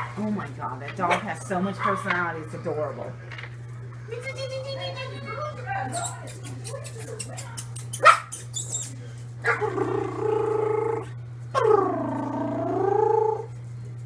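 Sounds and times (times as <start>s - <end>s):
dog howling: 9.5s - 13.6s.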